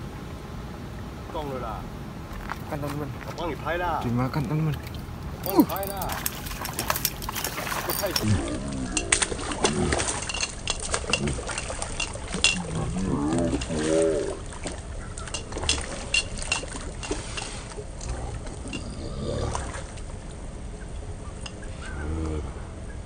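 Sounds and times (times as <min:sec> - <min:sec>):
fish splashing at water surface: 0:04.8 - 0:20.2.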